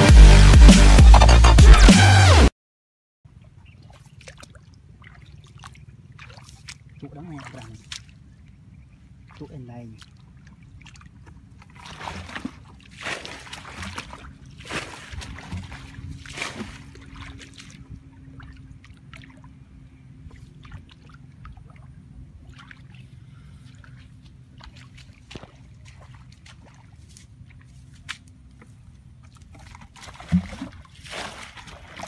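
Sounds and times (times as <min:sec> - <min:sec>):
footsteps wading through muddy water: 0:03.3 - 0:32.0.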